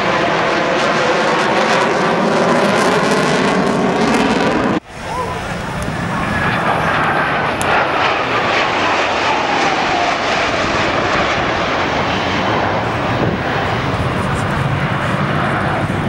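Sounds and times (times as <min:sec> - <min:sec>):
jet aircraft roaring past: 0:00.0 - 0:16.0.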